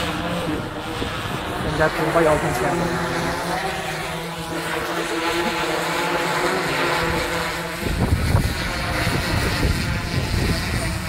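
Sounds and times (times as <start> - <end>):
drone propellers humming: 0.0 - 11.0.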